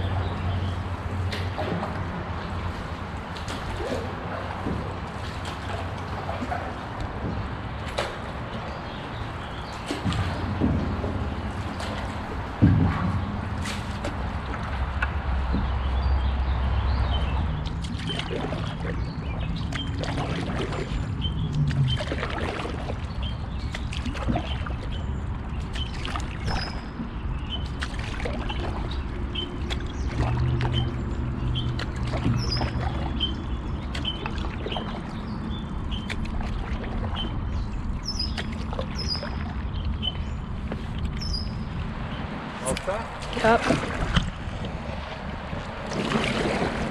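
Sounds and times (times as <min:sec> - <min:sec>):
paddle knocking against hull: 0:03.4 - 0:16.2, 0:25.7 - 0:35.2, 0:42.7 - 0:46.9
water splashing off paddle: 0:09.5 - 0:15.8, 0:19.7 - 0:21.0, 0:21.6 - 0:24.8, 0:27.6 - 0:29.0, 0:43.1 - 0:46.9.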